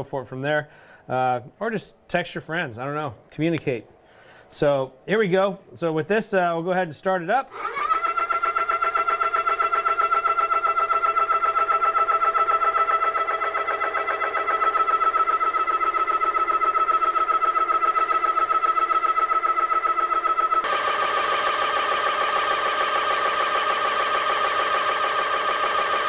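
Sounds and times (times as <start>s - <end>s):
air compressor whining: 7.5s - 26.0s
pump pulsing beat: 7.6s - 26.0s.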